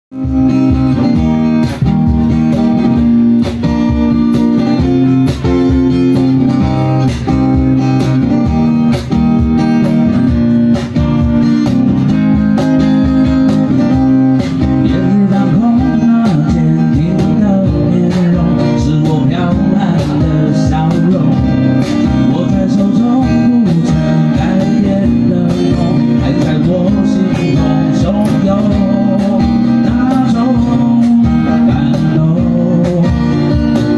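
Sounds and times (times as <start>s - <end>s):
acoustic guitars strumming: 0.1s - 33.9s
cajon beat: 0.1s - 33.9s
man singing: 14.6s - 33.9s.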